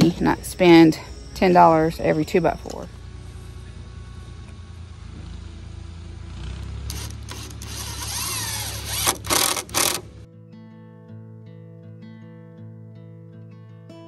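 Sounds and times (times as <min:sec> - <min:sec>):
sharp clicks: 0:06.9 - 0:10.1
cordless drill driving screw: 0:06.9 - 0:10.2.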